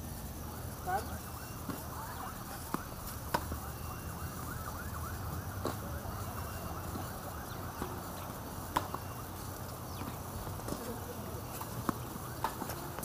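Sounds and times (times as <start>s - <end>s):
tennis balls struck by rackets: 1.0s - 4.4s, 5.4s - 5.9s, 6.8s - 13.0s
balls bouncing on hard court: 1.6s - 3.7s, 5.6s - 6.0s, 6.8s - 13.0s.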